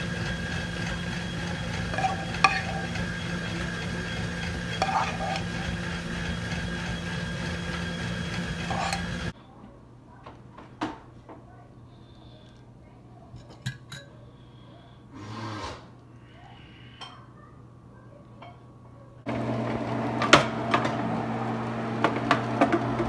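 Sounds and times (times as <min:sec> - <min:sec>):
spoon scraping frying pan: 0:01.5 - 0:09.3.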